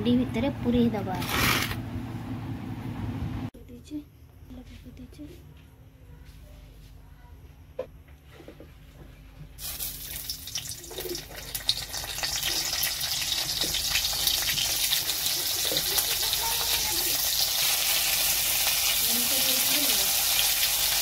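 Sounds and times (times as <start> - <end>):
hot oil sizzling: 9.6 - 21.0.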